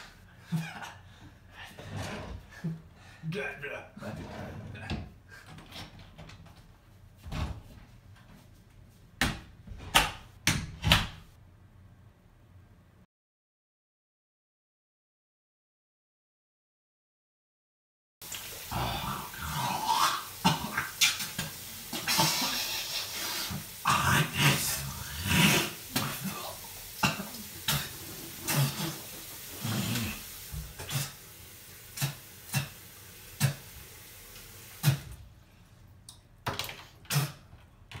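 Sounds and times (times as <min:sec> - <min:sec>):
person grunting: 0:18.7 - 0:20.9, 0:23.8 - 0:27.8, 0:29.6 - 0:30.2.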